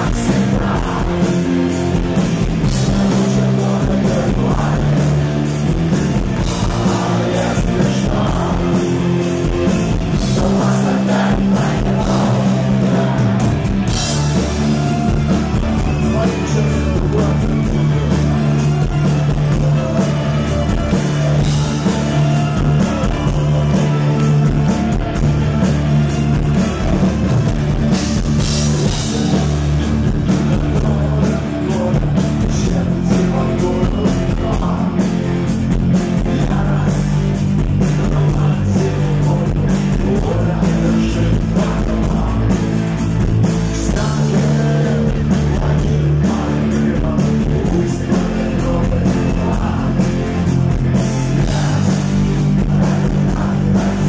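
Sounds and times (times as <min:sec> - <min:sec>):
man singing lead vocal: 0:00.0 - 0:26.9, 0:27.8 - 0:54.0
live rock band playing: 0:00.0 - 0:54.0.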